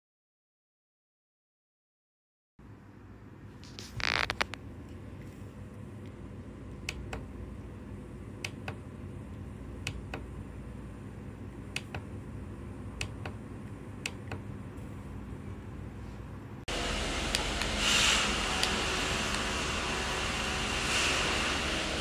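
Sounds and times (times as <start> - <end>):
low hum: 2.6 - 22.0
spray hiss: 16.7 - 22.0.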